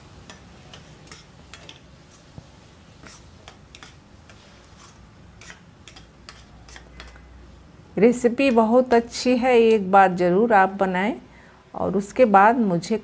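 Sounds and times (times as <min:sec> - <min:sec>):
metal ladle scraping a pan: 0:00.3 - 0:02.3, 0:03.0 - 0:07.3.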